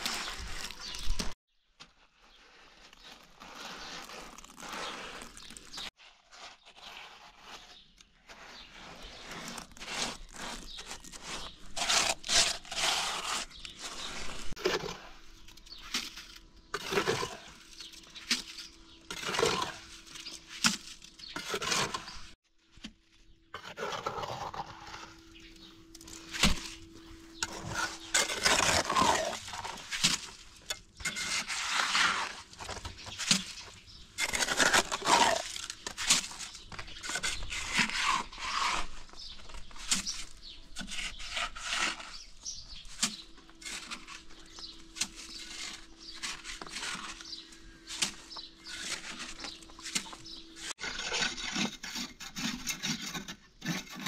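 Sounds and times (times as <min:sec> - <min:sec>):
rough scraping and rubbing: 0:00.0 - 0:01.4, 0:02.0 - 0:54.0.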